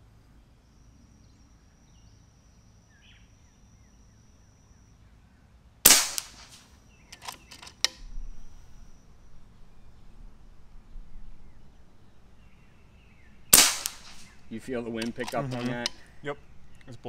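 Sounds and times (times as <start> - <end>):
air rifle shot: 5.9 - 8.1, 13.5 - 16.0
quick clicks: 5.9 - 8.1, 13.6 - 16.1.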